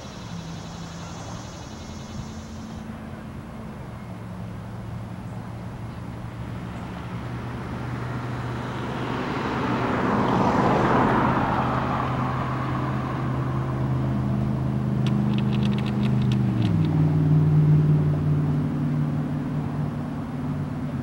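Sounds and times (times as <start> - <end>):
vehicles passing: 0.0 - 21.0
high clicks: 15.0 - 17.0.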